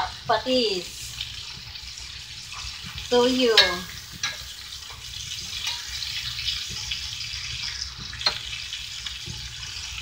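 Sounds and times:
meat sizzling in a skillet: 0.0s - 10.0s
spatula clicking against pan: 2.6s - 9.6s.

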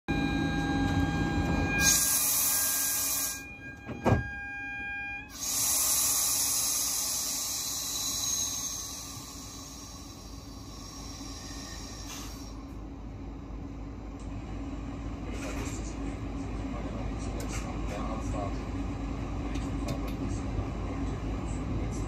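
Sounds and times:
train hum and high tones: 0.1s - 22.0s
air hiss: 5.3s - 12.6s.

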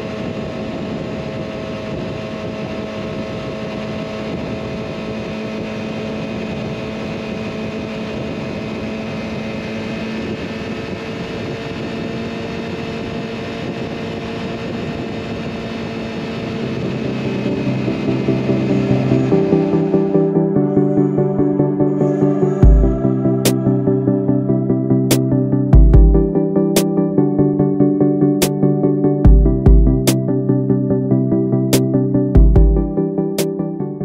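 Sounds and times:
wind rushing over microphone: 0.0s - 26.4s
motorcycle engine running: 0.0s - 33.6s.

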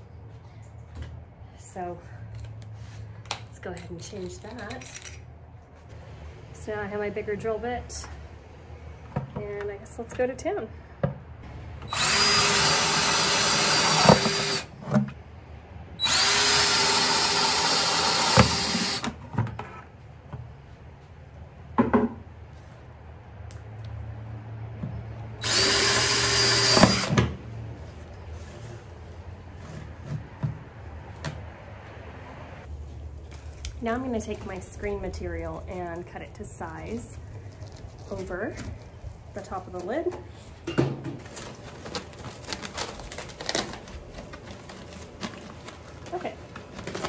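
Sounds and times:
drill boring through plastic: 11.8s - 14.7s, 16.0s - 19.1s, 25.4s - 27.2s.

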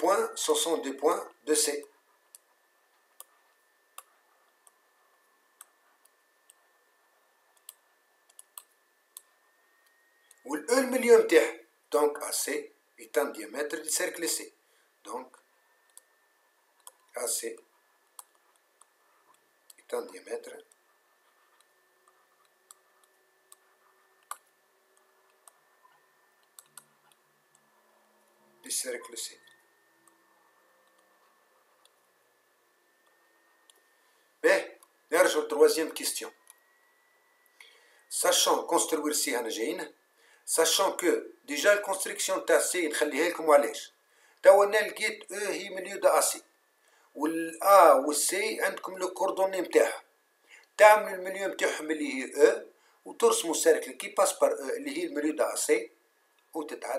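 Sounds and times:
faint high tone: 36.1s - 38.1s.

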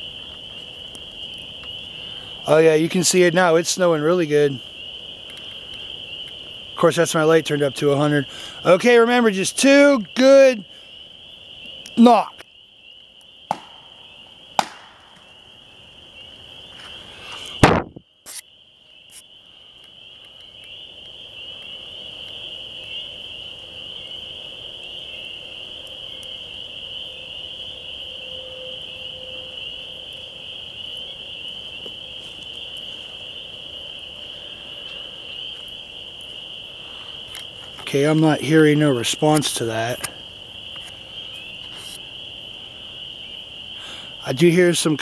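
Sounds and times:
log striking wood: 13.5s - 13.8s, 14.6s - 15.0s, 17.6s - 18.0s
sharp thump: 14.6s - 14.9s, 17.6s - 18.0s.

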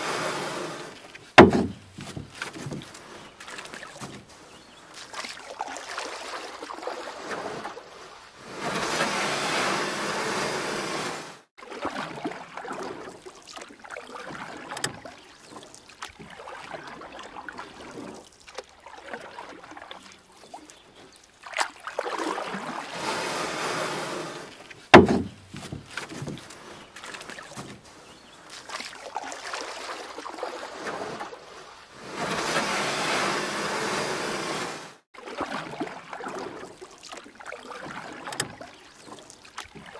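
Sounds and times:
water swishing off a paddle: 0.0s - 39.9s
soft splashes and drips: 0.9s - 8.4s, 11.5s - 22.9s, 24.5s - 31.9s, 35.1s - 39.9s
sharp knock: 1.4s - 1.9s, 25.0s - 25.4s.

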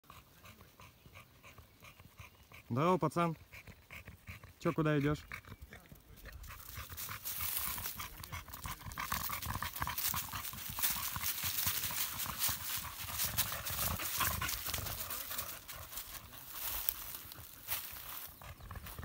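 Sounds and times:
dog panting: 0.0s - 19.0s
dry leaves crunching underfoot: 6.6s - 19.0s.

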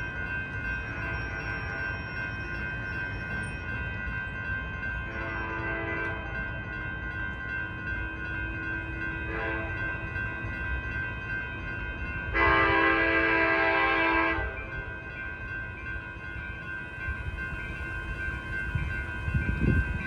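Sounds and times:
railroad crossing bells ringing: 0.0s - 20.0s
train horn: 5.1s - 6.4s, 9.3s - 10.0s, 12.3s - 14.9s.

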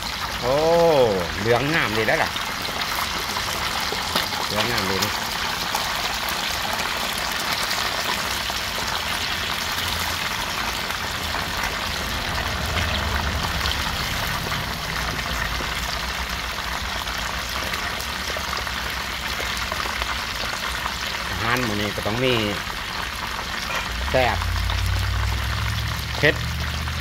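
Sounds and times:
fish sizzling in hot oil: 0.0s - 27.0s
low rumble: 11.2s - 16.5s, 23.8s - 27.0s.

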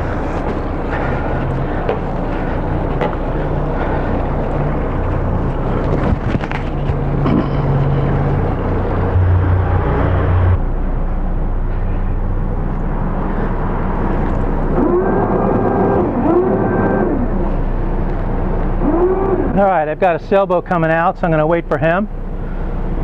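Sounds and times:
boat engines idling: 0.0s - 23.0s
short rising whines: 7.0s - 19.6s.

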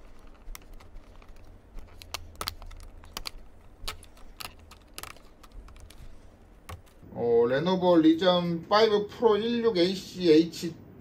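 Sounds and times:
plastic clicks: 0.0s - 7.0s
low steady hum: 0.0s - 11.0s.

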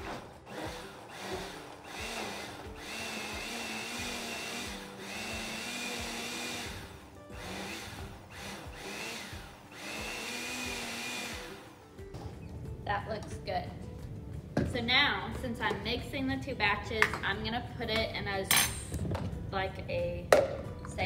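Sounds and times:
blender motor whining: 0.0s - 11.8s.

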